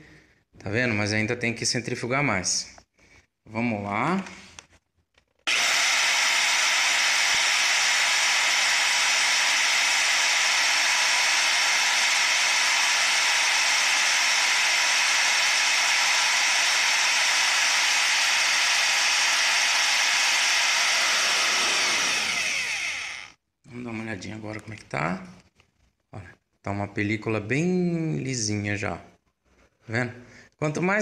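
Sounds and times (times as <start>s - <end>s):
electric drill whirring: 5.5s - 23.4s.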